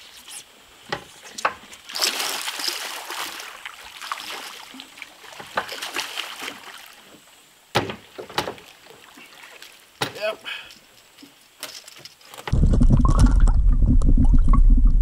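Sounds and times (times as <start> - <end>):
fish splashing in water: 1.9 - 7.1
sharp knocks: 7.7 - 8.6.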